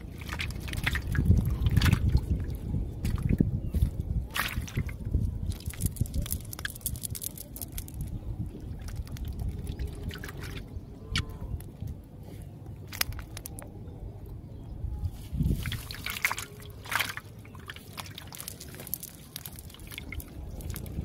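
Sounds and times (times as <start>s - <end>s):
hand handling wet fishing net: 0.0s - 2.4s, 3.0s - 8.1s, 12.8s - 13.7s, 15.2s - 21.0s
small drips: 15.6s - 21.0s.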